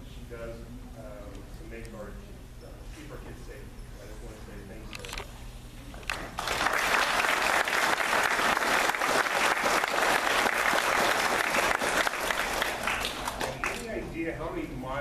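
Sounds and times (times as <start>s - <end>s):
audience applauding: 6.1s - 13.8s.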